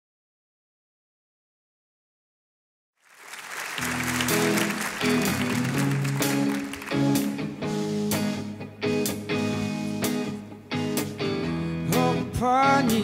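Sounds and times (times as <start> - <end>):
audience applause: 3.0 - 7.9
live pop band playing: 3.8 - 13.0.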